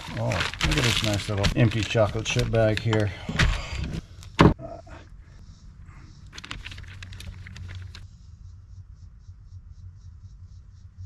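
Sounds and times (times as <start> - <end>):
plastic bag crinkling: 0.0 - 4.0, 6.3 - 8.0.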